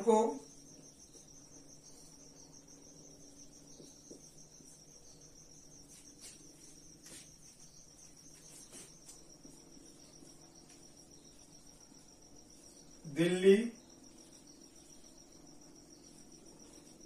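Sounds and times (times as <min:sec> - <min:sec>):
marker strokes on whiteboard: 0:05.8 - 0:11.5.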